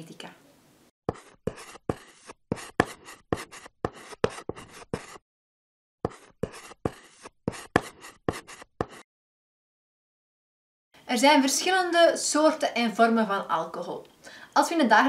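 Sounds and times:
chalk scratching on blackboard: 1.1 - 5.2, 6.0 - 9.1.

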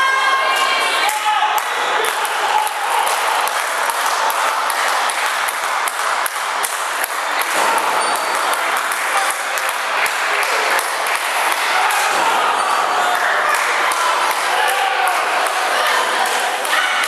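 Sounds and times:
crowd voices and shouts: 0.0 - 17.0
sharp claps and knocks: 1.1 - 12.3.

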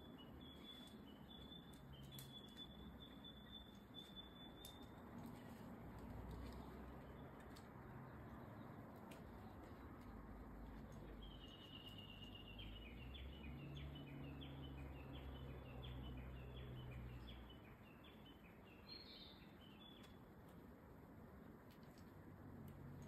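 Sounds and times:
songbird chirping: 0.0 - 22.3.

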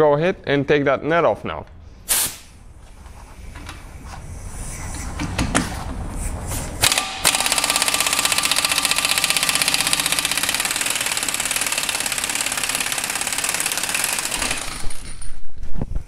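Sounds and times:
impact wrench rattling: 6.8 - 15.6.

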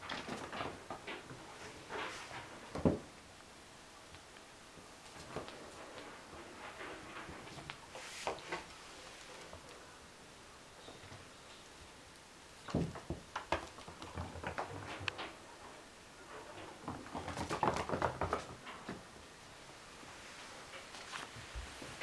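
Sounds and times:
kittens' paws tapping on wooden floor: 12.7 - 15.4, 16.6 - 19.1.

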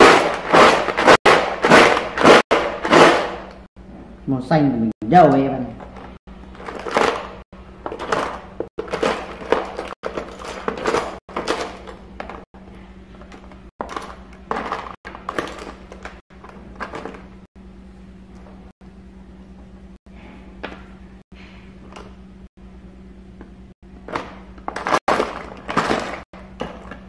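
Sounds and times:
rustling and clattering of rummaging: 0.0 - 3.6, 5.8 - 17.5, 24.0 - 27.0.

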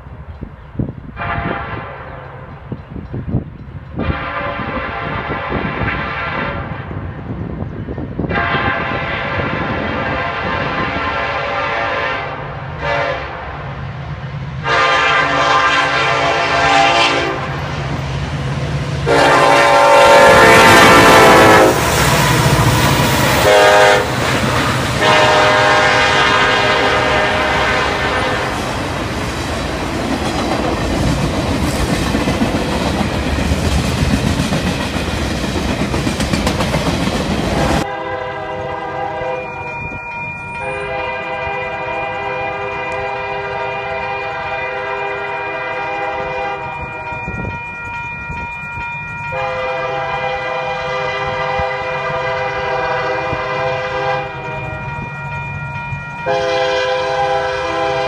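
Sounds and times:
train rumble: 0.0 - 58.0
locomotive air horn blasts: 1.2 - 2.2, 4.0 - 6.8, 8.3 - 13.5, 14.6 - 17.6, 19.0 - 28.6, 37.7 - 39.8, 40.6 - 47.1, 49.3 - 54.8, 56.2 - 58.0
distant train horn: 1.2 - 2.5, 4.0 - 6.9, 8.2 - 13.7, 14.6 - 18.0, 19.0 - 29.0, 36.9 - 47.6, 49.2 - 55.4, 56.2 - 58.0.

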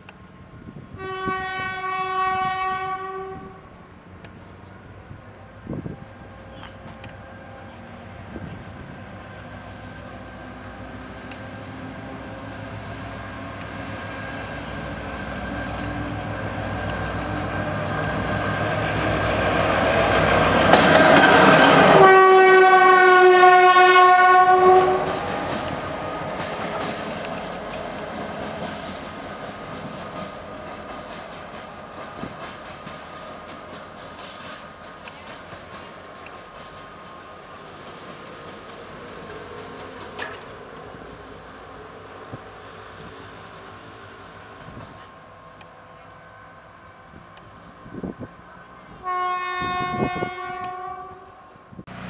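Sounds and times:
diesel locomotive passing: 0.0 - 52.0
locomotive horn blast: 0.9 - 3.7, 15.6 - 26.4, 49.0 - 52.0.

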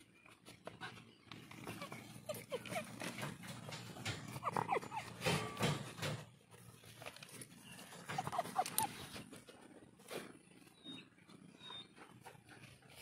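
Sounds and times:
high animal squeaks: 1.5 - 5.3, 7.8 - 9.3.

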